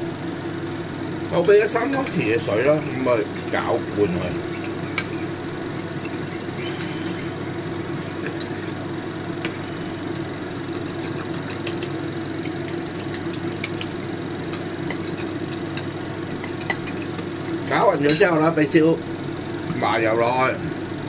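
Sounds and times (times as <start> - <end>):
low mechanical hum: 0.0 - 21.0
metal spoon stirring sauce in bowl: 3.1 - 17.5
spoon clinking against bowl: 4.4 - 8.8, 14.5 - 17.3, 18.0 - 18.4.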